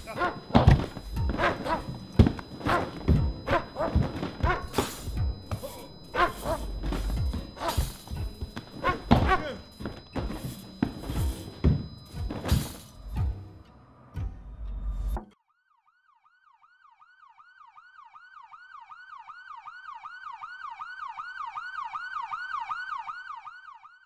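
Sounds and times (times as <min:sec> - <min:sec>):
siren yelping: 0:00.0 - 0:12.9, 0:15.6 - 0:24.0
thumps and bangs of a scuffle: 0:00.0 - 0:13.0.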